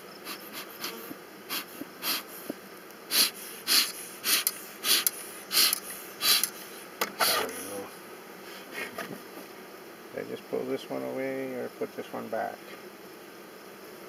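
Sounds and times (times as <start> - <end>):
bellows puffing air: 0.2 - 9.1.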